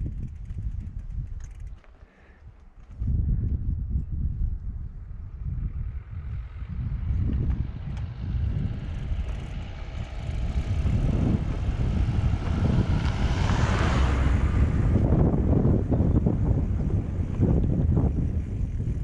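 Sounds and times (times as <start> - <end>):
wind on microphone: 0.0 - 1.8, 2.4 - 19.0
van driving past: 5.9 - 18.9.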